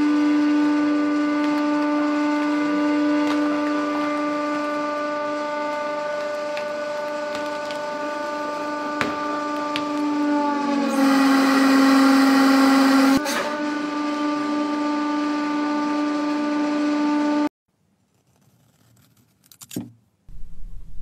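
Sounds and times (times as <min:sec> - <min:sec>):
hydraulic press humming: 0:00.0 - 0:14.9.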